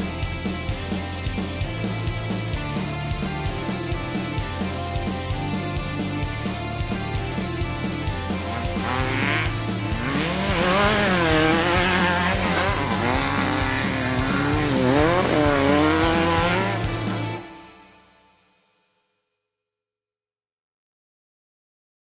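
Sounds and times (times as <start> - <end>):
buggy engine revving: 0.0 - 17.5
background music with steady beat: 0.0 - 19.0.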